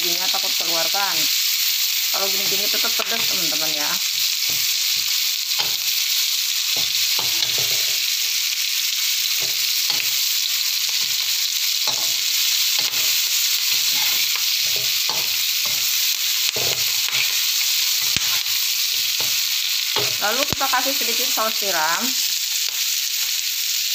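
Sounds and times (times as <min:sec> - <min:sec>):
prawns sizzling in hot oil: 0:00.0 - 0:23.9
metal spatula scraping wok: 0:06.7 - 0:08.4, 0:09.4 - 0:20.4.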